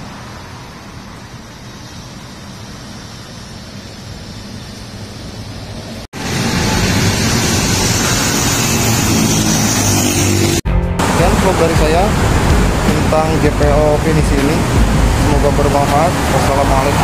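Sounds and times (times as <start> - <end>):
road traffic: 0.0 - 17.0
low engine hum: 5.8 - 17.0.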